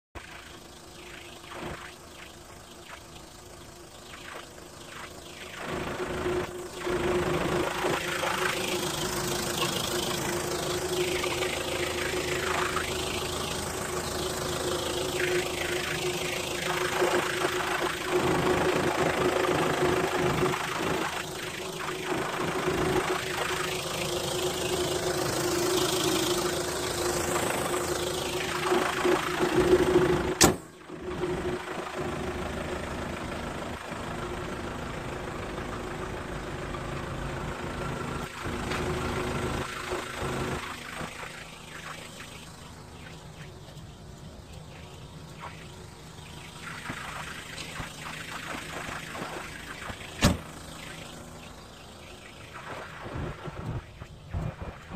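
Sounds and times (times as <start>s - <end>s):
diesel engine idling: 5.7s - 41.7s
sharp bang: 50.2s - 50.5s.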